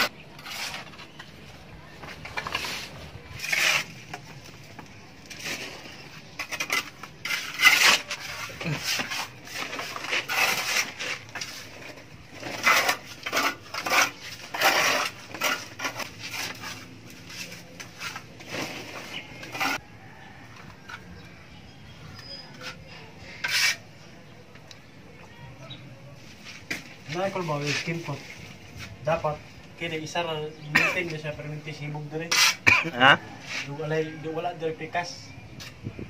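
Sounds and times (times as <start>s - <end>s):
trowel scraping plaster: 0.0s - 1.3s, 2.3s - 4.6s, 5.2s - 19.8s, 22.4s - 23.9s, 32.2s - 33.7s.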